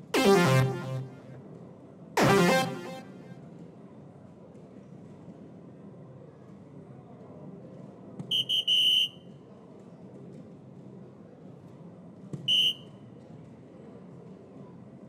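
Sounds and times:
dartboard beeps: 0.0s - 1.4s, 2.2s - 3.3s.

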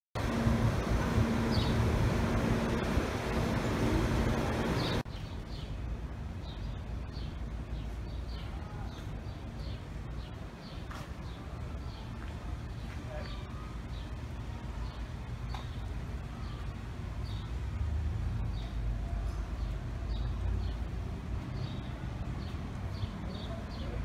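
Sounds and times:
mechanical hum with low drone: 0.2s - 8.0s.

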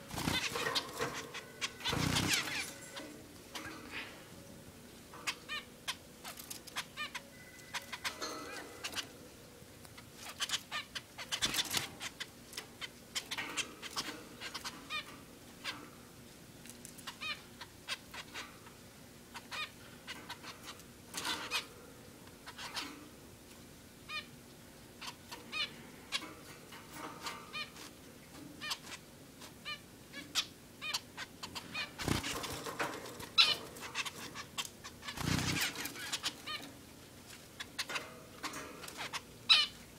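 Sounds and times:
finches beeping calls: 0.0s - 4.0s, 5.2s - 9.2s, 29.7s - 36.7s.

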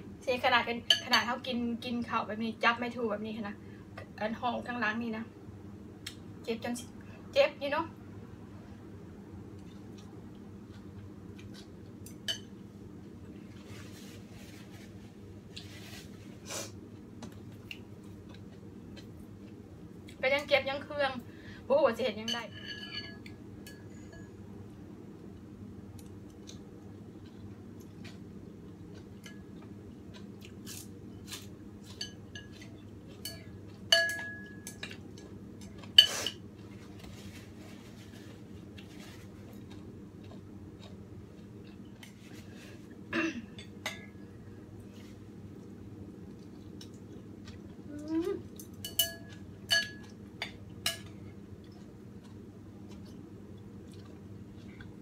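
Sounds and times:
low steady hum: 0.0s - 55.0s
utensils clinking against bowl: 22.3s - 24.4s, 31.8s - 35.0s, 48.6s - 51.2s.

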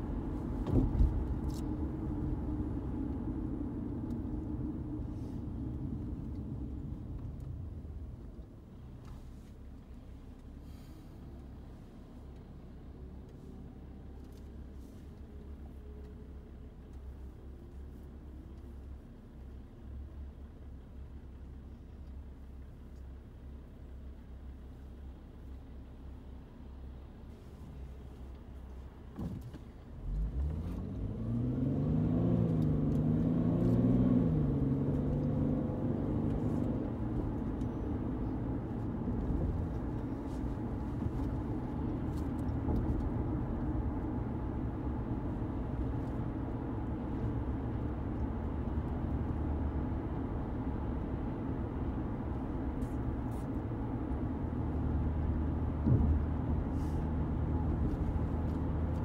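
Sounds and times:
short thump: 0.6s - 1.3s, 55.8s - 56.4s
car engine accelerating: 29.8s - 59.0s.

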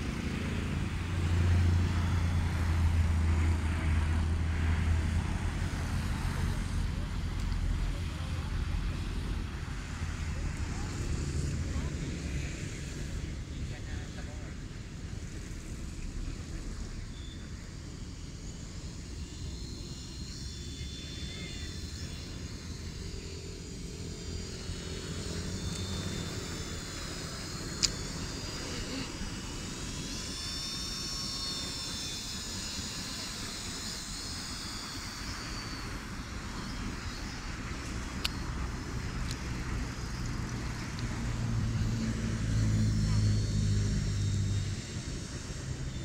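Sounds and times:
low rumble of wind: 0.0s - 46.0s
toy helicopter motor whine: 0.0s - 46.0s
sharp clicks: 27.6s - 28.3s.

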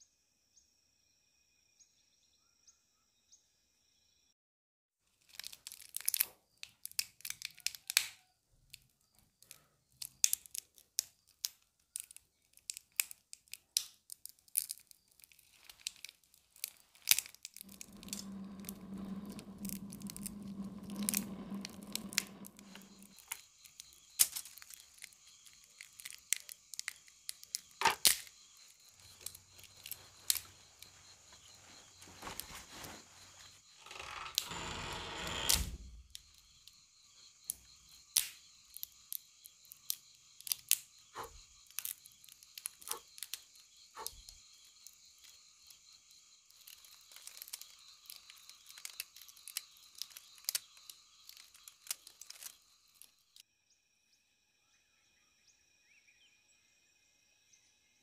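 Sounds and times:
wood fire crackling and popping: 15.5s - 28.3s.

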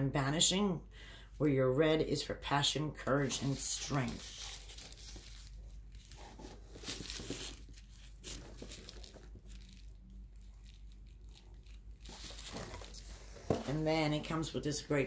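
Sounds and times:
paper rustling and crinkling: 3.3s - 14.2s.

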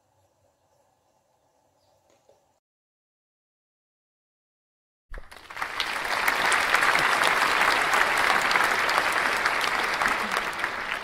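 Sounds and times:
crowd applauding: 5.2s - 11.0s.

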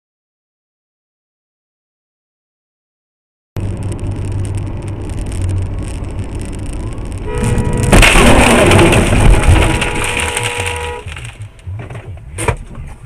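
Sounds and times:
car engine and road rumble: 3.6s - 13.0s
car horn: 7.2s - 11.6s
loud collision crash: 7.2s - 11.6s.

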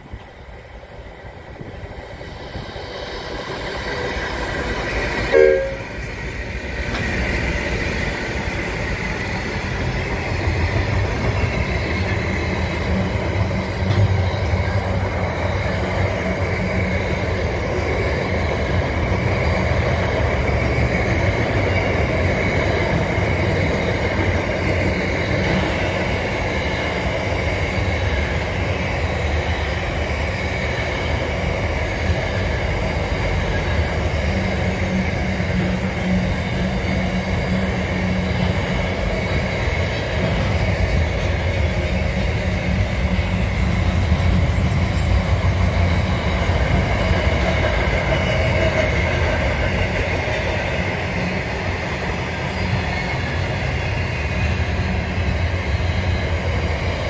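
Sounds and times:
freight train rumbling past: 0.0s - 57.0s
train horn blast: 5.3s - 6.0s.

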